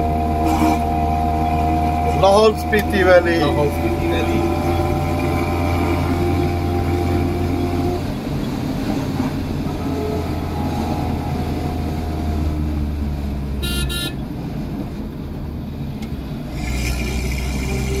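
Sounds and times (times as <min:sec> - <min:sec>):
car engine running: 0:00.0 - 0:18.0
car horn toots: 0:13.6 - 0:14.3.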